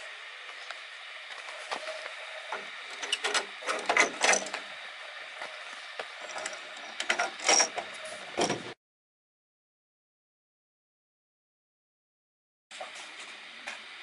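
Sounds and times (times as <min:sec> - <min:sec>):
steady hiss: 0:00.0 - 0:08.8.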